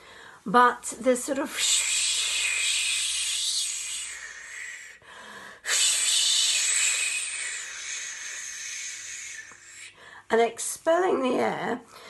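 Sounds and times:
woman breathing out hissing: 0:01.6 - 0:10.2.

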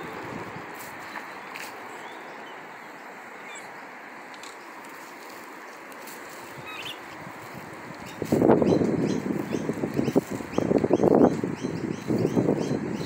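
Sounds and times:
outdoor background hiss: 0:00.0 - 0:13.0
faint bird chirps: 0:06.6 - 0:07.0.

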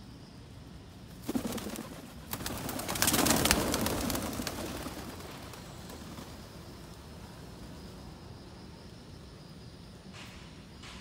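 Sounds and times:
pigeon wings flapping: 0:01.2 - 0:06.5.

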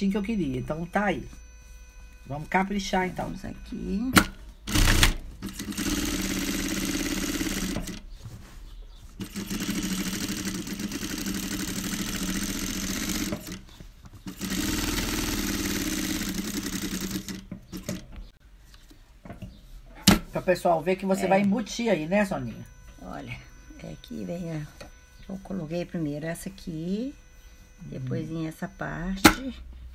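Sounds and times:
electric sewing machine stitching: 0:04.2 - 0:08.0, 0:09.2 - 0:13.7, 0:14.3 - 0:18.0.

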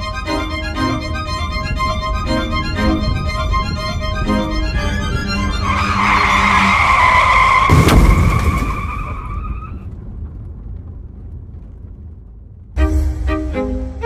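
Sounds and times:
car tyres screeching: 0:00.2 - 0:10.0
crash impact: 0:07.0 - 0:13.8.

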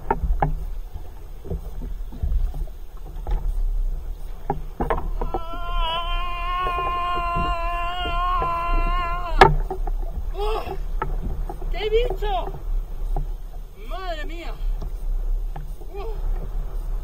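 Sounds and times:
water: 0:00.0 - 0:17.0
wind: 0:00.0 - 0:17.0
man shouting in triumph: 0:05.2 - 0:09.6.

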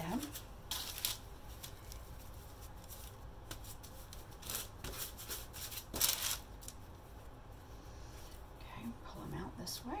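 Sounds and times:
hands rolling dough: 0:00.0 - 0:07.3
paper rustling: 0:00.2 - 0:06.8.

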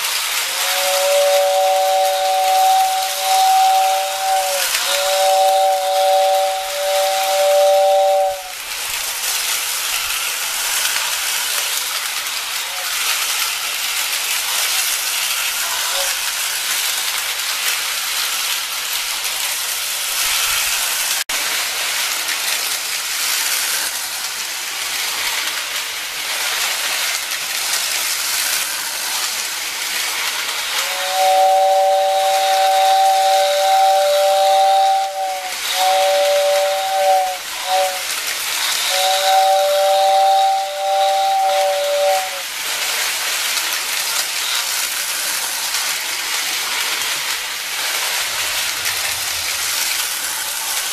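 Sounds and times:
two-tone train whistle: 0:00.0 - 0:10.1, 0:15.6 - 0:16.3, 0:30.2 - 0:42.5
toy train running hiss: 0:00.0 - 0:50.9.

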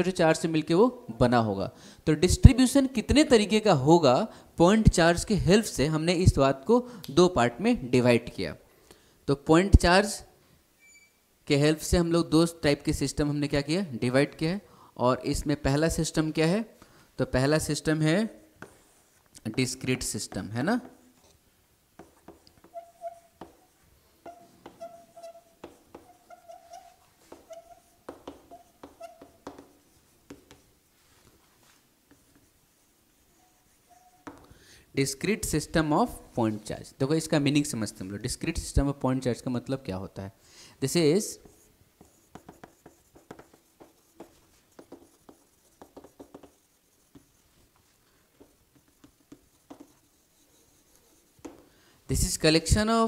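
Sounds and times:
chalk tapping on chalkboard: 0:18.6 - 0:21.3, 0:22.0 - 0:34.6, 0:41.4 - 0:51.8
chalk squeaking: 0:22.0 - 0:34.5, 0:41.2 - 0:51.7.

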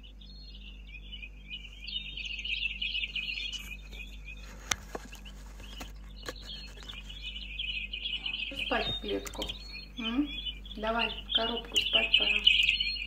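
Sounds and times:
small birds twittering: 0:00.0 - 0:13.0
sharp clicks: 0:08.6 - 0:09.8, 0:11.7 - 0:12.9.

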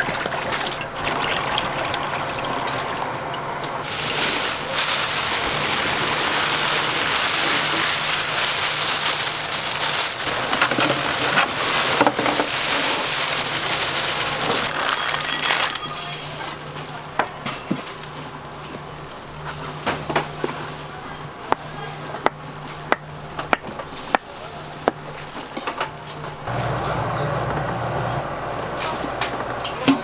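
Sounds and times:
food deep-frying in oil: 0:00.0 - 0:23.2.

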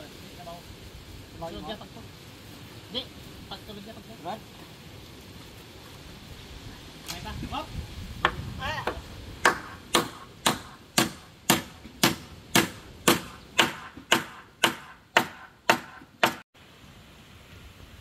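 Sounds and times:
hammer striking: 0:08.2 - 0:16.4.

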